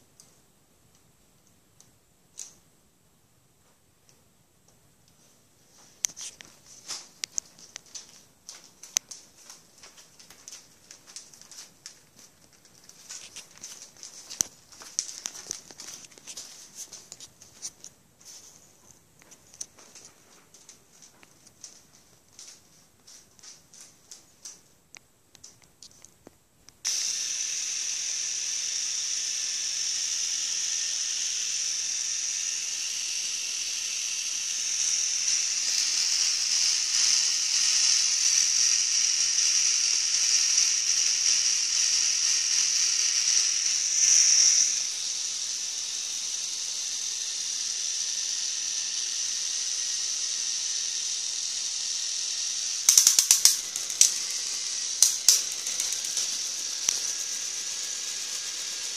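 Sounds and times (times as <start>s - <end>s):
plastic gears whirring: 26.8s - 58.9s
rapid plastic clicking: 52.9s - 57.4s.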